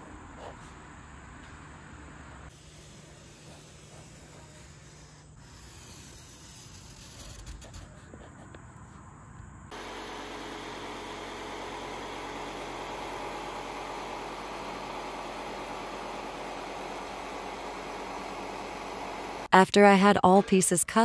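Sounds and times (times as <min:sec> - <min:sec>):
jigsaw cutting foam board: 0:02.7 - 0:07.9
marker scratching on board: 0:03.0 - 0:08.5.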